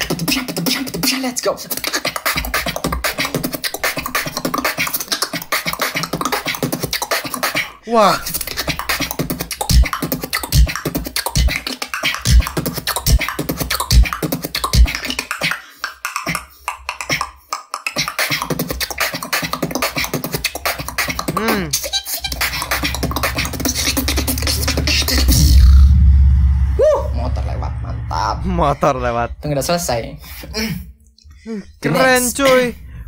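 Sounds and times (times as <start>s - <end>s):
person beatboxing: 0.0s - 25.8s
motorbike passing: 22.3s - 29.3s.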